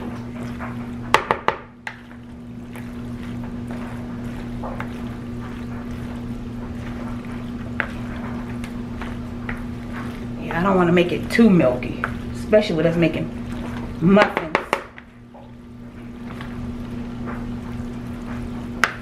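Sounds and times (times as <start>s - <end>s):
spatula squelching and scraping: 0.0s - 19.0s.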